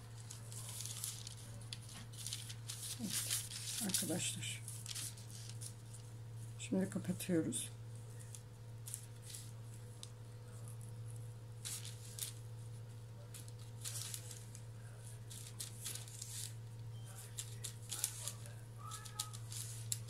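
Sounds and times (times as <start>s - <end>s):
baking paper and dough rustling: 0.0s - 20.0s
steady low hum: 0.0s - 20.0s.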